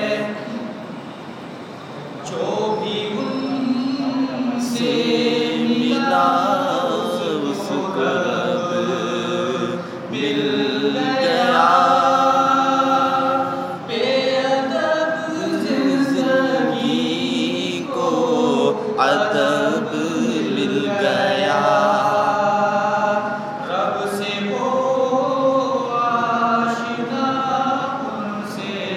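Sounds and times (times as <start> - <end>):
man singing devotional song: 2.3 - 28.9.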